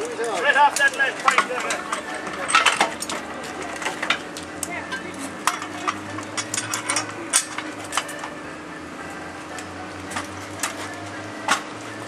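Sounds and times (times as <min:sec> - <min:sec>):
tools and metal parts clinking: 0:00.0 - 0:08.4, 0:09.5 - 0:11.7.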